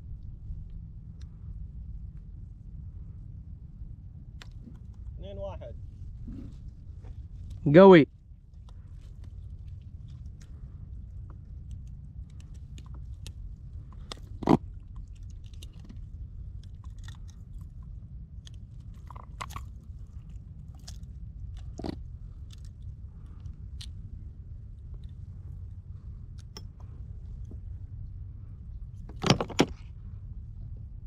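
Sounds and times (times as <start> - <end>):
low rumble: 0.0 - 31.0
gear clicks and knocks: 8.6 - 24.0, 28.9 - 30.0.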